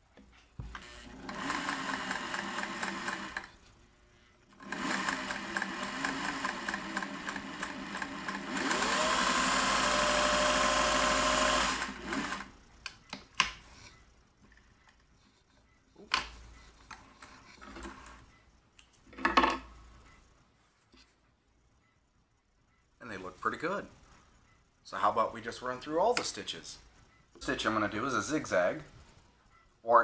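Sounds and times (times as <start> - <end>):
sewing machine stitching: 0.8 - 3.6, 4.6 - 12.5.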